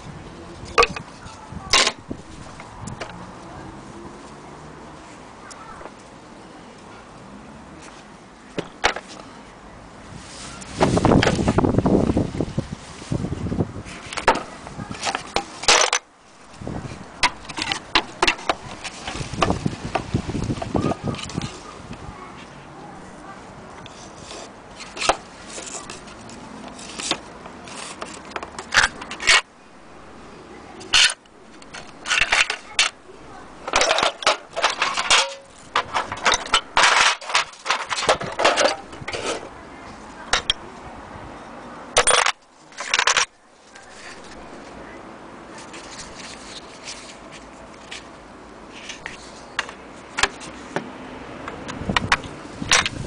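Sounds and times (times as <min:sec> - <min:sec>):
tools and metal tin clattering: 0:00.7 - 0:01.1, 0:01.7 - 0:02.0, 0:14.2 - 0:16.0, 0:17.2 - 0:19.6, 0:27.8 - 0:29.5, 0:30.9 - 0:33.0, 0:33.6 - 0:39.5, 0:40.3 - 0:40.6, 0:42.0 - 0:44.4
metal tools clinking in tray: 0:33.7 - 0:39.5.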